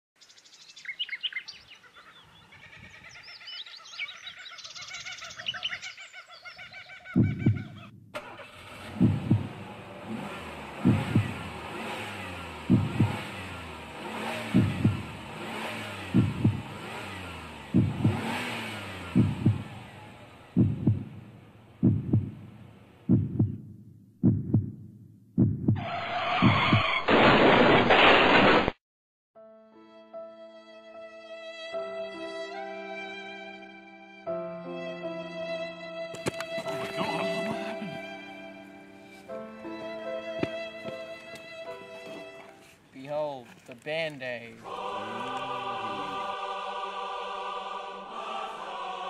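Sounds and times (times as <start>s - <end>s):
birds chirping: 0.2s - 8.0s
heartbeat thumps: 7.1s - 8.2s, 8.8s - 9.7s, 10.7s - 11.7s, 12.6s - 13.6s, 14.4s - 15.2s, 16.0s - 16.9s, 17.6s - 19.9s, 20.5s - 25.8s, 26.4s - 26.9s
steady hum: 8.9s - 11.7s.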